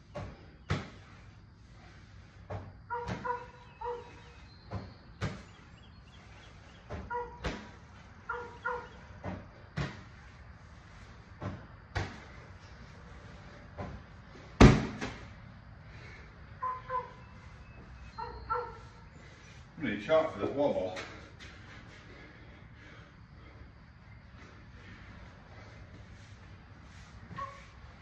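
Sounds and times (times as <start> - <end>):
medicine ball thuds: 0.1 - 1.1, 4.7 - 5.5, 6.8 - 7.9, 9.1 - 10.2, 11.4 - 12.4, 14.6 - 15.3.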